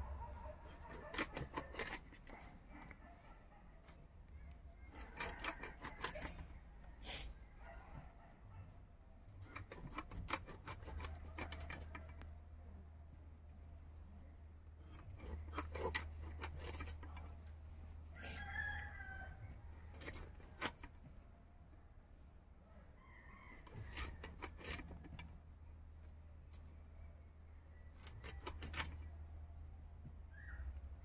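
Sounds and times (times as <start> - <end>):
knife scraping and cutting fish: 0.0 - 3.0, 4.9 - 7.8, 9.4 - 12.2, 14.8 - 17.5, 19.6 - 21.0, 23.5 - 25.2, 28.0 - 29.0.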